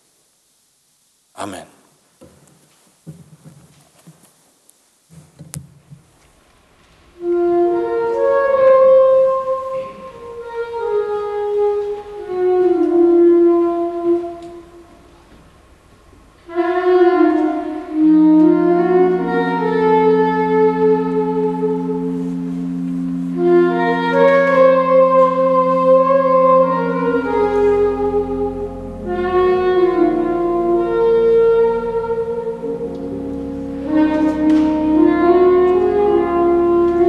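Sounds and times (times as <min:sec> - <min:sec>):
low sustained note: 0:07.1 - 0:15.3, 0:16.4 - 0:37.0
saxophone slow melody: 0:07.1 - 0:37.0.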